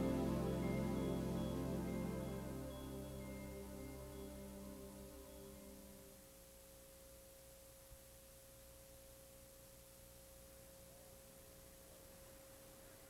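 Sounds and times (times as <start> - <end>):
faint pure tone: 0.0 - 13.0
light hiss: 0.0 - 13.0.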